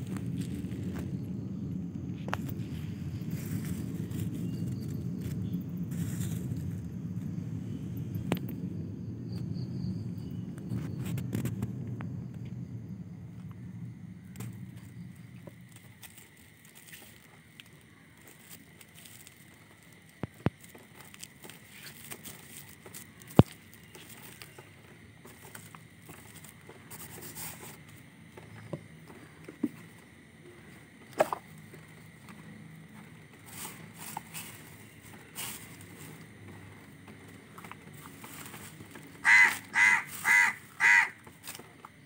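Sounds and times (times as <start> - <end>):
paper rustling: 15.6 - 27.9.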